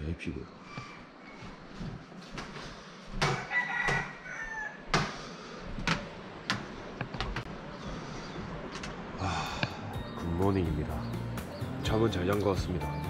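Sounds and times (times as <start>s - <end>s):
sharp knocks: 3.2s - 4.1s, 4.9s - 5.2s
rooster crowing: 3.2s - 5.0s.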